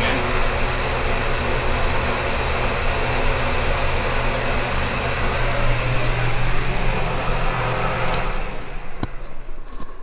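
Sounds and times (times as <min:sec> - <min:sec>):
exhaust fan rushing air: 0:00.0 - 0:09.7
low steady fan hum: 0:00.0 - 0:09.7.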